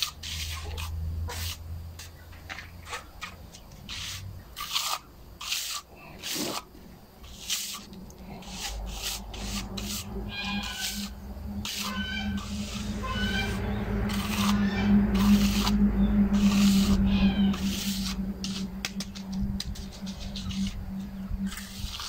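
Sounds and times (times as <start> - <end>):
trowel scraping wet concrete: 0.0 - 15.8, 16.4 - 20.8, 21.5 - 22.0
birds calling: 9.2 - 22.0.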